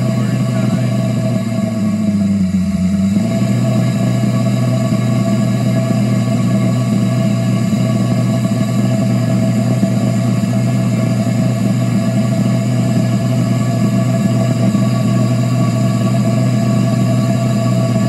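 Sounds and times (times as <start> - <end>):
air compressor humming: 0.0 - 18.0.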